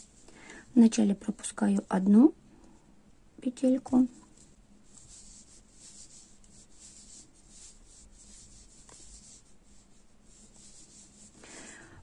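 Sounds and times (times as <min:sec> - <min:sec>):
yarn rubbing on crochet hook: 0:03.9 - 0:11.4.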